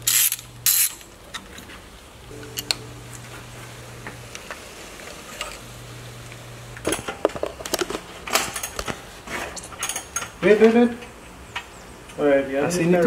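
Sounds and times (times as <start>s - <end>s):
low hum: 2.3s - 6.8s
metal tools clinking and rattling: 9.6s - 10.4s.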